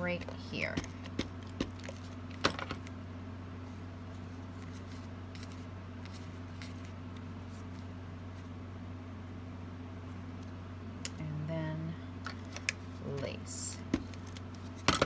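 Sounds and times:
steady low hum: 0.0 - 15.0
ribbon and paper rustling: 4.2 - 8.6.

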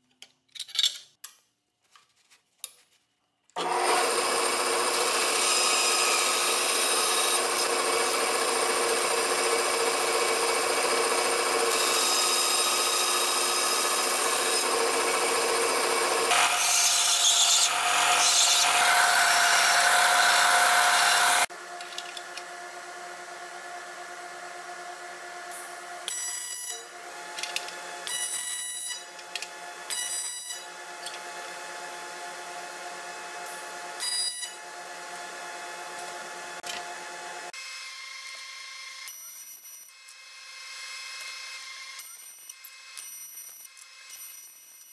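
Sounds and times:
band saw cutting metal: 3.6 - 21.5, 23.6 - 43.0
belt sander grinding metal: 3.6 - 21.5.

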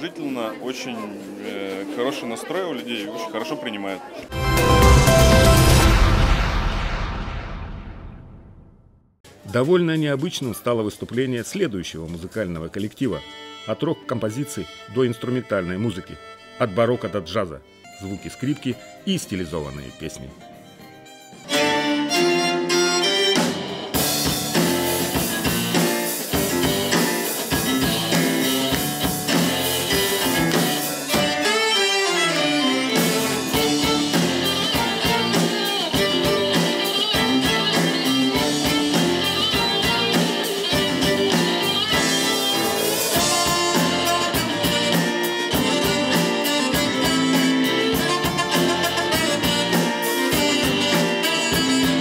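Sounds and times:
violins bowing: 21.0 - 24.2, 27.6 - 50.3
drum kit steady beat: 21.3 - 52.0
electric guitar: 21.5 - 52.0.

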